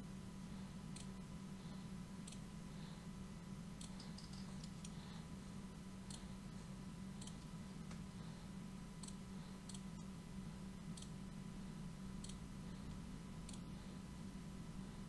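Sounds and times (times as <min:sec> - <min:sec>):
steady low hum: 0:00.0 - 0:15.0
computer mouse clicking: 0:03.8 - 0:05.0, 0:07.2 - 0:08.0.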